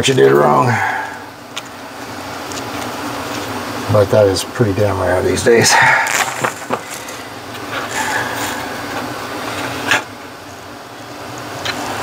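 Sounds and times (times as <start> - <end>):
steady low hum: 0.0 - 12.0
circuit board handled on wood: 6.1 - 7.0.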